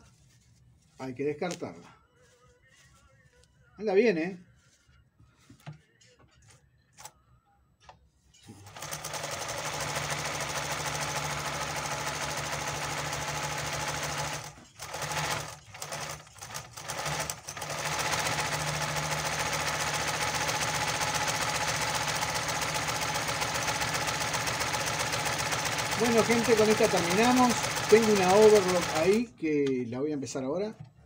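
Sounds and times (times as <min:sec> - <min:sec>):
sewing machine running: 0:08.6 - 0:29.2.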